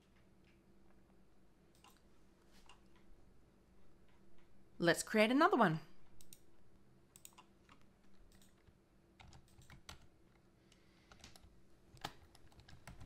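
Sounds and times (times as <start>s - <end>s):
faint keyboard typing: 0.0s - 3.2s, 6.0s - 13.0s.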